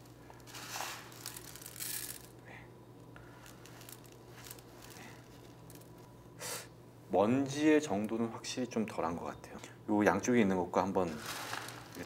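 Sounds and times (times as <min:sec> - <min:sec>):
granules pattering into glass bowl: 0:00.0 - 0:02.4, 0:03.2 - 0:06.0, 0:11.0 - 0:12.0
litter granules rustling: 0:00.0 - 0:02.4, 0:03.2 - 0:06.1, 0:11.0 - 0:12.0.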